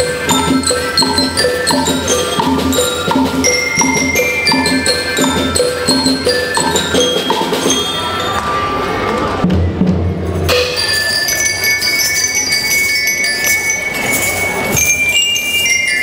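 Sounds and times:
bell lyres melody: 0.0s - 8.9s, 10.5s - 16.0s
drums beating: 0.0s - 11.3s.

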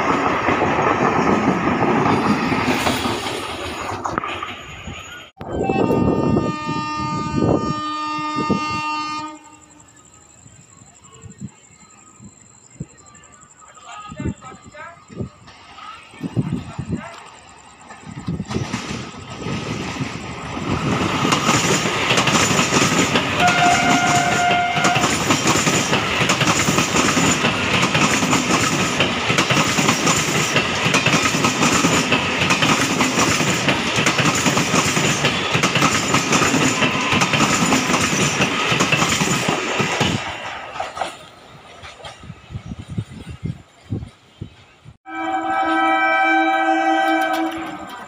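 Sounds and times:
train clattering on rails: 0.0s - 7.7s, 13.6s - 44.9s, 46.5s - 48.0s
train horn blast: 5.4s - 9.9s, 23.4s - 25.2s, 45.1s - 48.0s.

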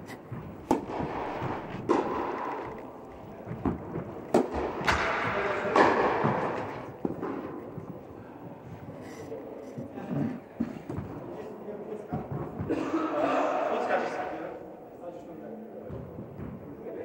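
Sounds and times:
racquet hitting tennis ball: 0.0s - 8.0s
tennis ball bouncing: 0.2s - 8.0s.

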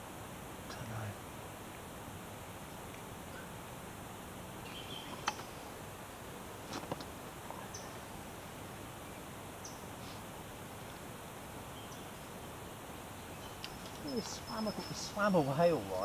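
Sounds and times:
outdoor background hiss: 0.0s - 16.0s
faint bird chirps: 3.3s - 3.6s, 4.6s - 5.6s, 7.5s - 9.9s, 11.6s - 16.0s.

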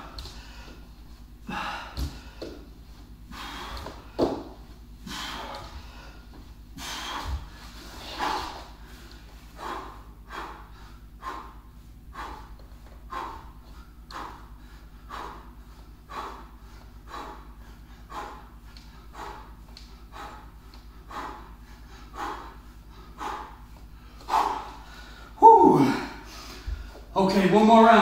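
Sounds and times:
man exhaling forcefully: 1.4s - 2.6s, 3.3s - 6.2s, 6.8s - 8.9s.

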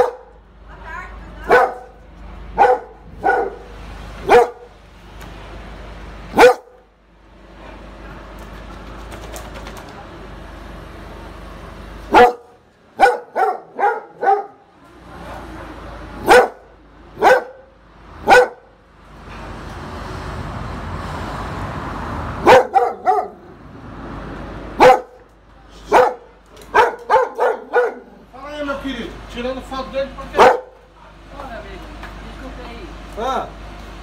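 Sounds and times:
dog barking: 0.0s - 0.3s, 1.5s - 2.0s, 2.6s - 4.7s, 6.3s - 6.8s, 12.1s - 14.6s, 16.2s - 18.7s, 22.4s - 23.5s, 24.8s - 25.2s, 25.9s - 28.2s, 30.4s - 30.8s.

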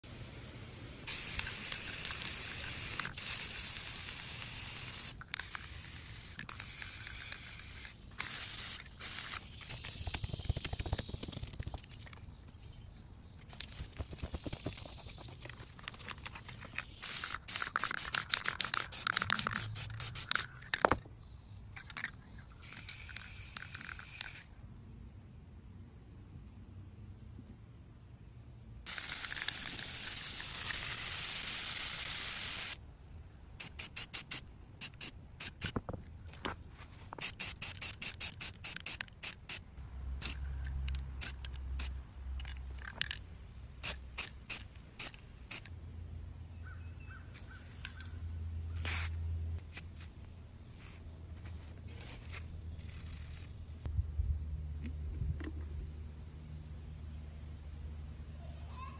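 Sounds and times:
spray paint can hissing: 1.0s - 12.4s, 13.4s - 21.0s, 21.7s - 24.6s, 28.8s - 32.8s, 33.6s - 35.9s, 37.0s - 39.6s, 40.2s - 43.2s, 43.8s - 45.7s, 47.4s - 48.2s, 48.8s - 53.5s.

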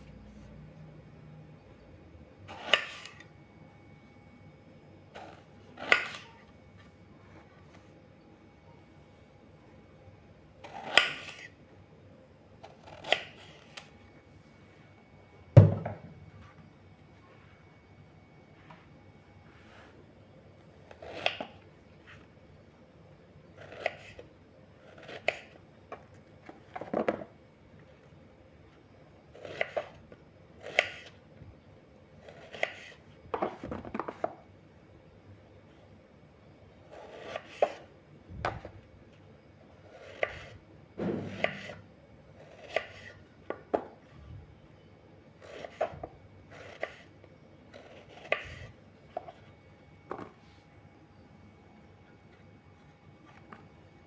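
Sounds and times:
knife cutting on wooden board: 2.5s - 3.2s, 12.7s - 13.7s, 41.2s - 41.8s, 45.4s - 47.0s, 47.8s - 48.7s.

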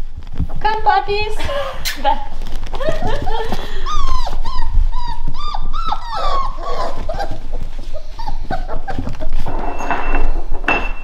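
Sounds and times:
puppies whining: 2.8s - 10.5s.

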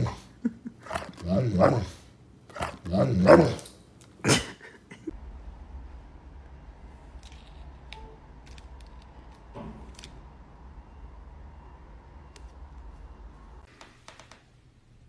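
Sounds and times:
dog whining: 0.0s - 3.7s
low hum: 5.0s - 13.7s.

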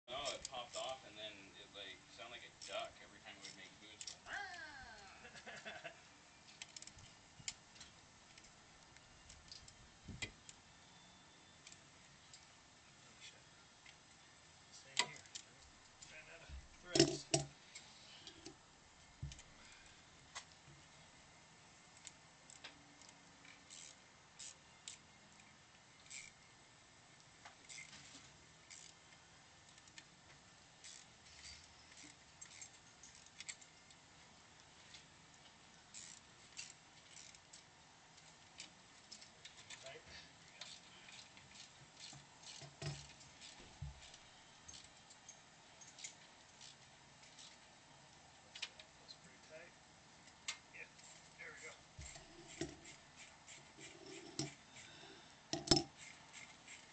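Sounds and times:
socket ratchet clicks: 55.6s - 56.8s.

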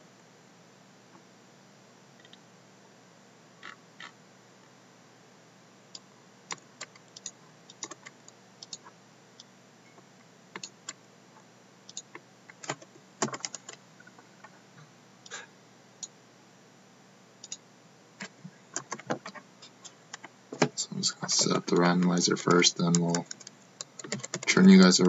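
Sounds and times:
computer mouse clicks: 5.9s - 8.9s, 10.6s - 11.0s, 11.9s - 13.8s, 17.4s - 17.6s.

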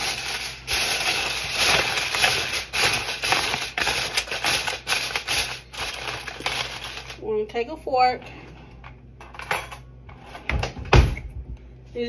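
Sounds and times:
aluminium foil crinkling: 0.0s - 7.2s.

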